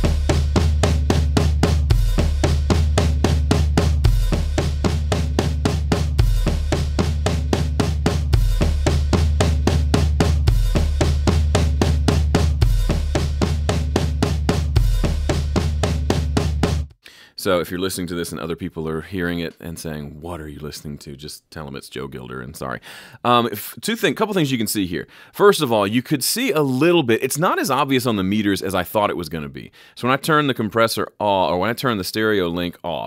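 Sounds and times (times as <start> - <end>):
drum kit playing fast pattern: 0.0 - 16.9.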